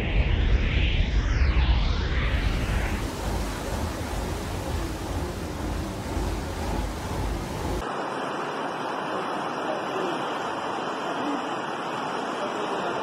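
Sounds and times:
rumbling hiss: 2.4 - 7.8
floodwater rushing along street: 2.4 - 13.0.

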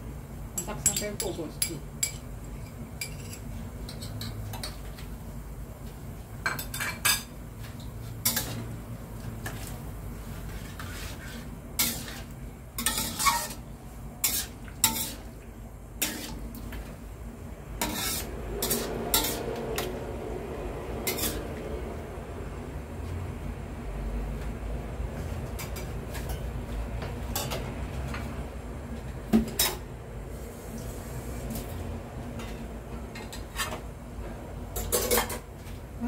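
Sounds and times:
metal spatula scraping wok: 8.1 - 8.7, 9.4 - 15.4, 16.0 - 16.9, 17.8 - 20.1, 21.0 - 21.6, 33.2 - 33.8.

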